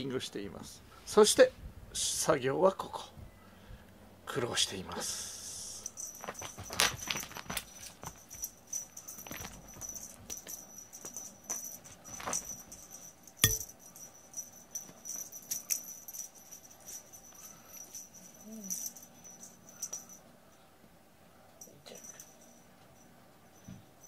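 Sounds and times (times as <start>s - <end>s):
small bell jingling: 5.7s - 20.6s, 21.6s - 24.0s.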